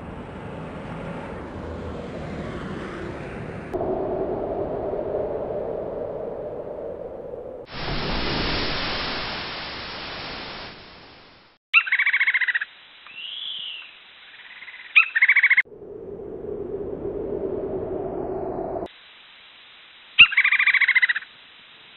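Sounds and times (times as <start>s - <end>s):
rushing noise: 3.7s - 11.6s
bird calls and squawks: 11.8s - 15.6s, 20.2s - 21.3s.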